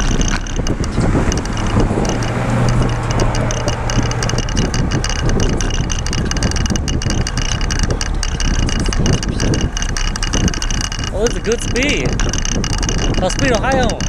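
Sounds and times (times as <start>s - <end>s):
bicycle road noise: 0.0s - 14.0s
steady low hum: 0.0s - 14.0s
wind buffeting microphone: 0.0s - 14.0s.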